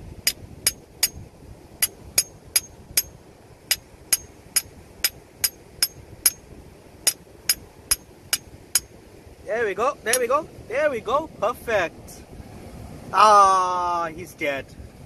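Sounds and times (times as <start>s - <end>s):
hammer striking chisel on rock: 0.3s - 9.0s, 10.1s - 10.3s.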